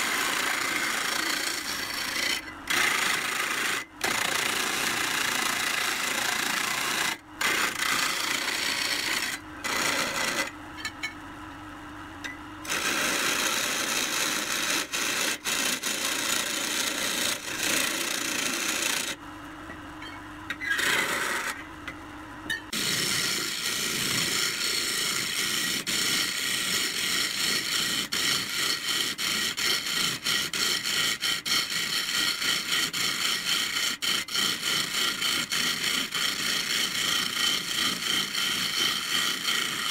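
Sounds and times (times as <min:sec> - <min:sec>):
turning tool scraping wood: 0:00.0 - 0:10.5, 0:12.7 - 0:19.2, 0:20.6 - 0:21.6, 0:22.7 - 0:39.9
wood lathe running: 0:00.0 - 0:10.5, 0:12.7 - 0:19.2.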